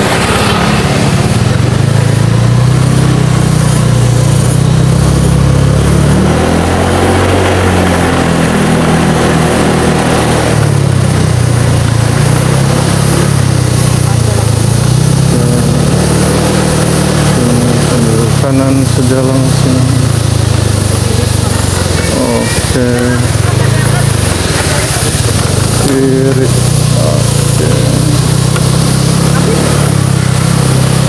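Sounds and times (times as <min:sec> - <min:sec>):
scooter engine running: 0:00.0 - 0:31.0
wind and road noise: 0:00.0 - 0:31.0.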